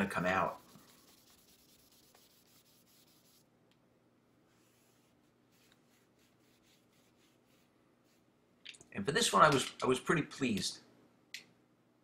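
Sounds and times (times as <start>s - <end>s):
cloth rubbing on steel blade: 0.3s - 3.5s, 4.6s - 8.3s.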